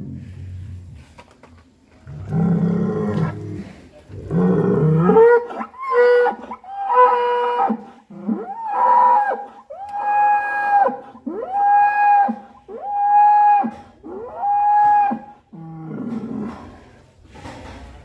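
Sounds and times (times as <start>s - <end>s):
bull bellowing: 2.1s - 16.8s.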